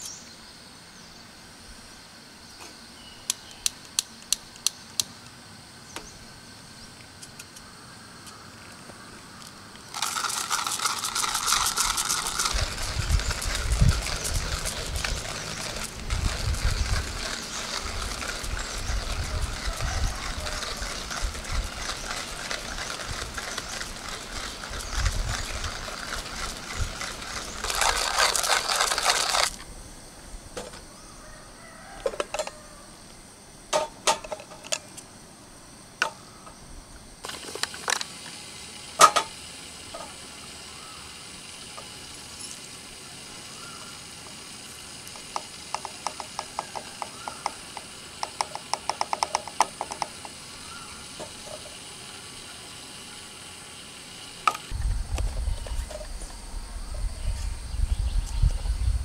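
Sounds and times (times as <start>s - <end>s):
coffee mill ratcheting clicks: 9.9s - 29.6s, 45.0s - 51.6s
steady rushing noise: 10.3s - 30.0s.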